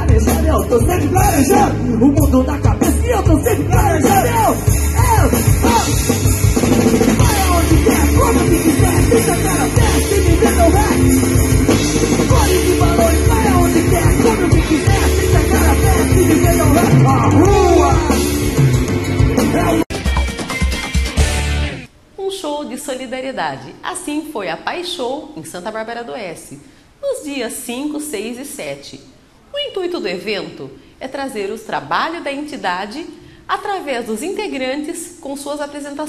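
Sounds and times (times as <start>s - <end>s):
lead singer singing: 0.0s - 6.1s, 7.1s - 18.7s
bass guitar: 0.0s - 21.9s
drum kit: 0.0s - 21.9s
electric guitar: 0.0s - 21.9s.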